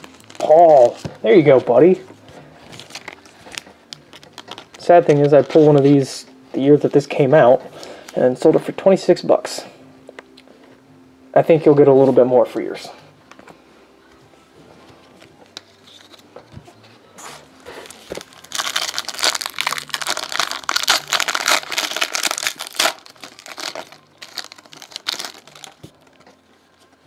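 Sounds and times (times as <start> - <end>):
foil wrapper crinkling: 17.8 - 26.2.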